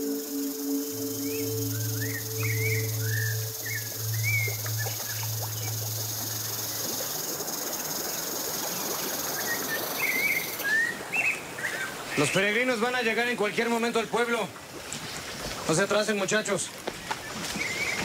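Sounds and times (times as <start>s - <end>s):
low droning tone: 0.0s - 7.5s
birds chirping: 0.0s - 8.3s
insects chorus: 0.0s - 10.7s.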